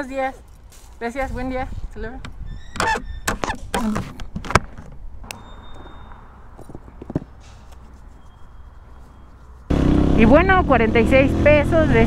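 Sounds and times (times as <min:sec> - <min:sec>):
soft handling clicks and knocks: 0:06.6 - 0:08.2
motorcycle riding noise: 0:08.8 - 0:12.0.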